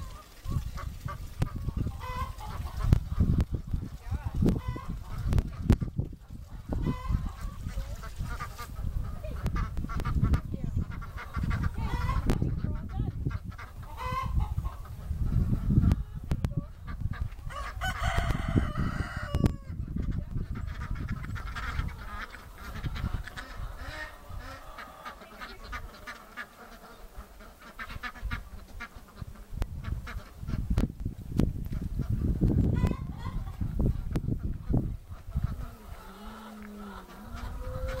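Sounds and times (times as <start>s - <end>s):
chickens clucking: 0.0s - 38.0s
rooster crowing: 17.5s - 19.7s.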